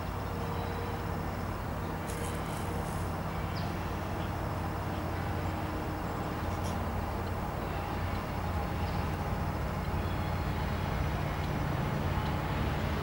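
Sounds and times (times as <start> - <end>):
distant diesel locomotive rumble: 0.0 - 13.0.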